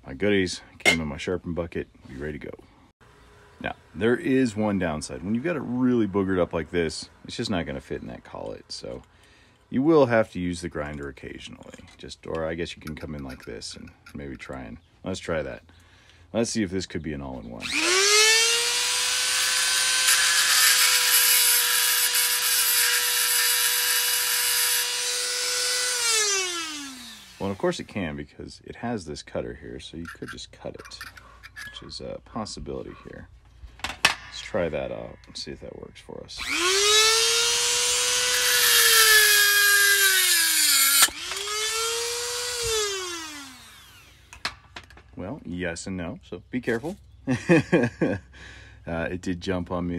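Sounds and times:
rotary tool whine: 17.6s - 27.8s, 36.4s - 44.5s.

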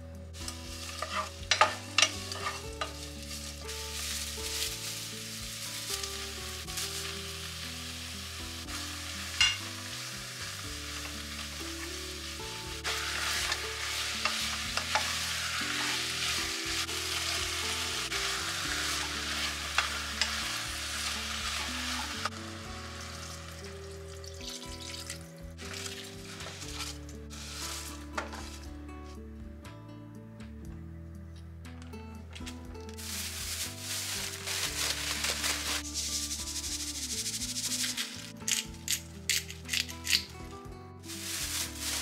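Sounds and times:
onions and beef sizzling in a pot: 0.0s - 28.7s, 32.9s - 40.3s, 41.0s - 42.0s.

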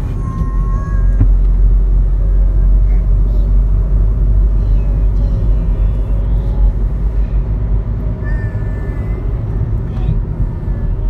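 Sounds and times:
car road and engine rumble: 0.0s - 11.0s.

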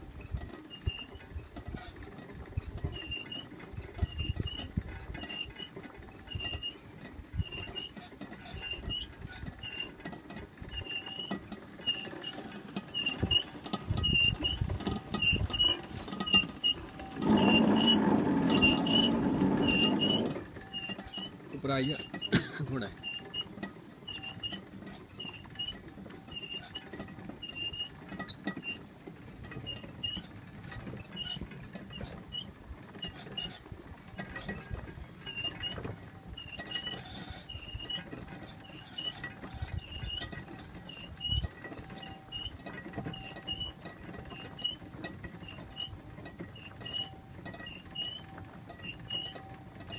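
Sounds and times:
trolley rumbling on rails: 8.4s - 24.5s
steady high whine: 17.0s - 20.6s.

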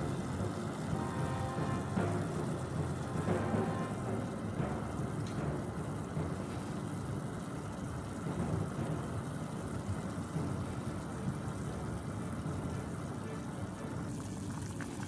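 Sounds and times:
soup bubbling in a pot: 0.0s - 15.0s.

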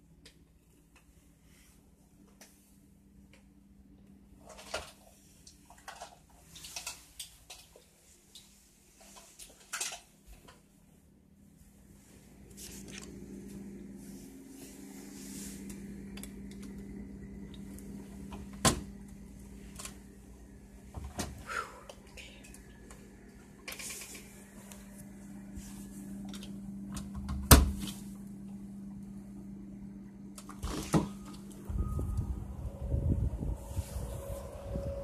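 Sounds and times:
steady low hum: 10.6s - 35.0s.

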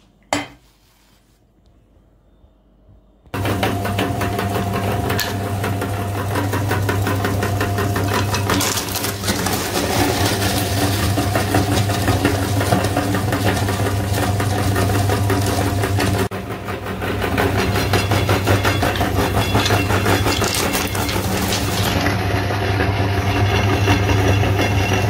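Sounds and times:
meat grinder motor humming: 3.4s - 25.0s
hard candy crunching: 17.4s - 22.0s.

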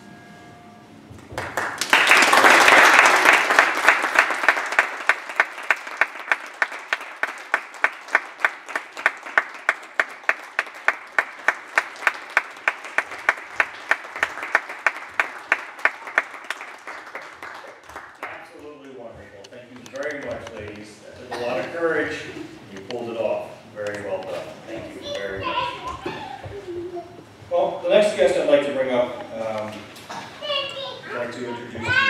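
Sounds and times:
audience applauding: 1.2s - 19.0s.

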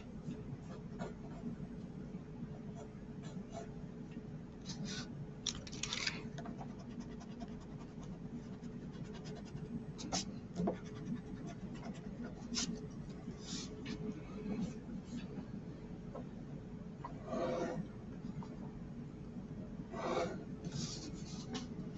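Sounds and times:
low steady hum: 0.0s - 21.9s
pencil scratching on paper: 6.6s - 12.8s.

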